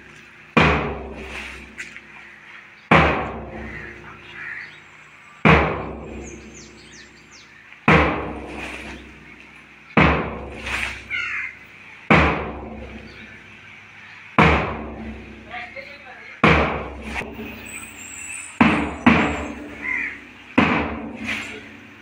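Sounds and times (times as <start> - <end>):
loud strikes with deep ringing: 0.5 - 1.8, 2.9 - 4.1, 5.4 - 7.2, 7.9 - 9.4, 10.0 - 11.2, 12.1 - 13.4, 14.4 - 15.5, 16.4 - 22.0.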